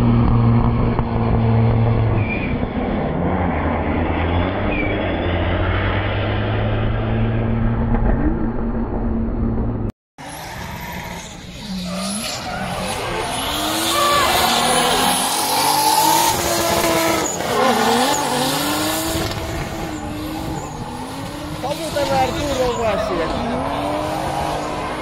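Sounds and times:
low engine drone: 0.0 - 10.5
car engines revving: 0.0 - 25.0
tyre squeal: 2.2 - 2.7, 4.1 - 5.7, 19.8 - 21.1.

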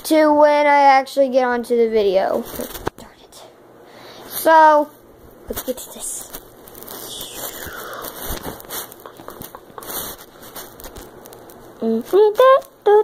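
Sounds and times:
person singing: 11.8 - 13.0.

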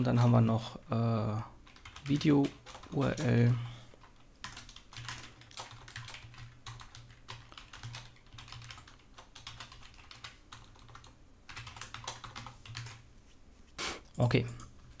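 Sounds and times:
typing on keyboard: 1.6 - 13.0.

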